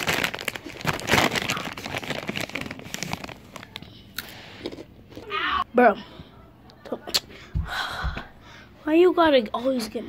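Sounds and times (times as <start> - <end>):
plastic chip bag crinkling: 0.0 - 3.9.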